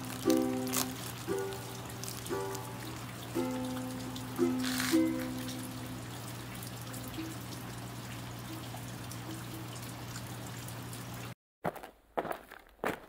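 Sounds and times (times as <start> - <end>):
steady rain falling: 0.0 - 10.2
low steady hum: 0.0 - 11.4.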